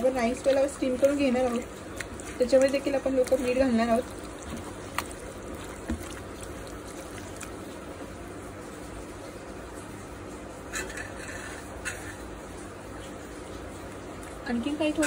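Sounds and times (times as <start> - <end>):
low steady background noise: 0.0 - 15.0.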